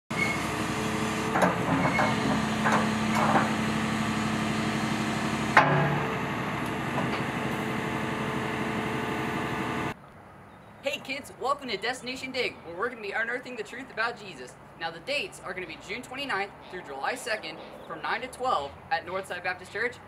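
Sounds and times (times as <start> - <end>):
excavator diesel engine running: 0.1 - 10.0
metallic clanks of bucket linkage: 1.3 - 3.6.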